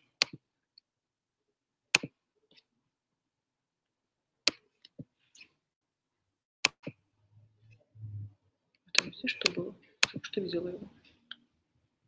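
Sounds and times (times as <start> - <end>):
computer mouse clicks: 8.9 - 10.3.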